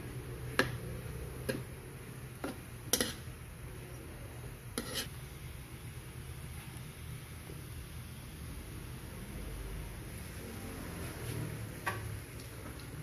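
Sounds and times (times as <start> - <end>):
steady low hum: 0.0 - 13.0
metal spoon scraping a wok: 2.4 - 3.4, 4.7 - 5.3.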